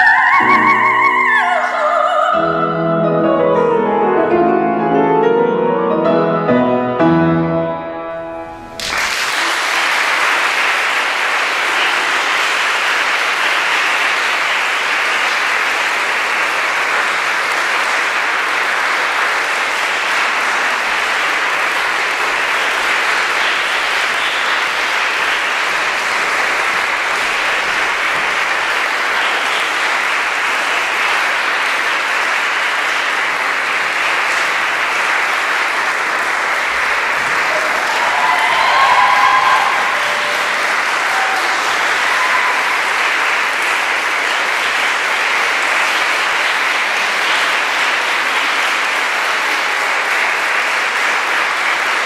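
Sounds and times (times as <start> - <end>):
grand piano chords: 0.4 - 8.9
audience applause: 8.5 - 52.0.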